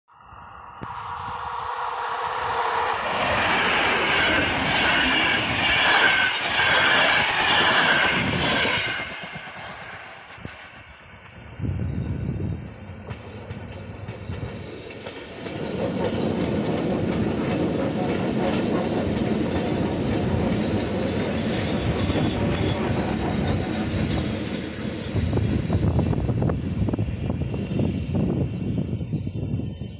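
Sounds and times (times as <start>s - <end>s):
train rumbling past: 0.5s - 29.9s
wheels clattering over rail joints: 13.0s - 25.8s.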